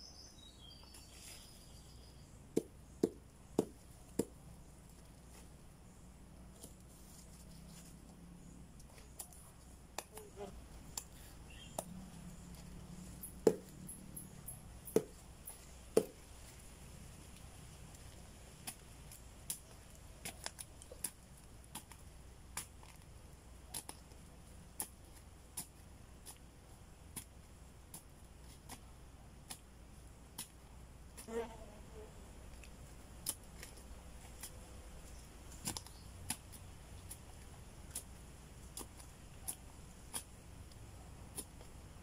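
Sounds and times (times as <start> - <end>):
hand tool knocking in soil: 2.5 - 4.4, 13.2 - 14.0, 14.8 - 16.3.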